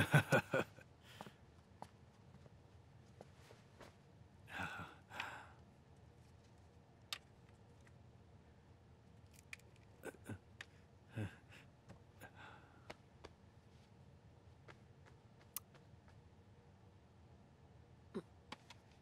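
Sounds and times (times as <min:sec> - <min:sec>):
breathy sound: 0:04.5 - 0:05.6, 0:10.0 - 0:12.9.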